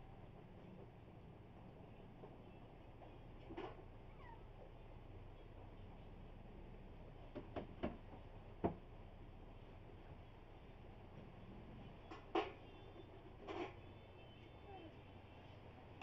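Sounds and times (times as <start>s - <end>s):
faint low hum: 0.0s - 16.0s
cat meowing: 4.0s - 4.7s.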